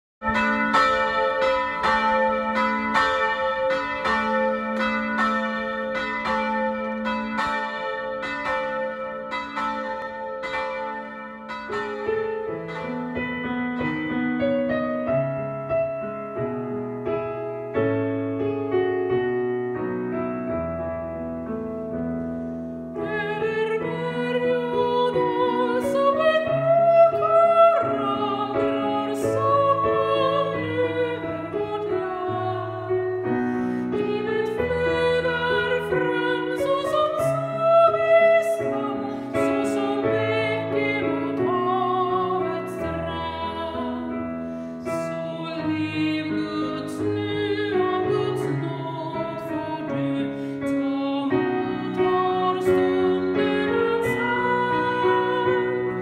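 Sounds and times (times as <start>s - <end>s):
church bells ringing: 0.2s - 15.4s, 23.4s - 44.2s
digital piano playing: 0.2s - 56.0s
woman singing a hymn: 23.0s - 56.0s.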